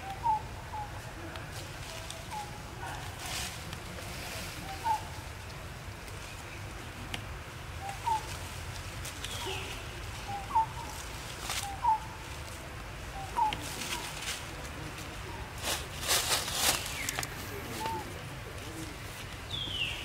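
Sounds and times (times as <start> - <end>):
dry leaves rustling: 0.0 - 20.0.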